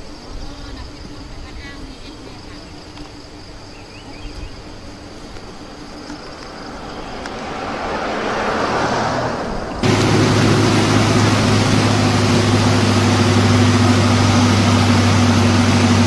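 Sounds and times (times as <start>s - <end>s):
low engine hum: 3.0s - 16.0s
floodwater rushing down stream: 6.4s - 16.0s.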